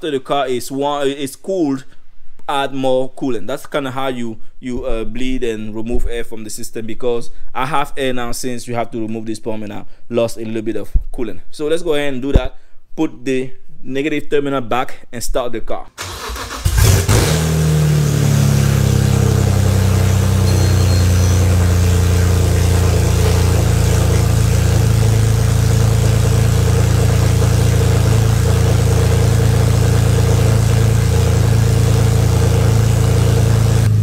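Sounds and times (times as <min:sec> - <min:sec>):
car engine idling loudly: 0:16.7 - 0:34.0.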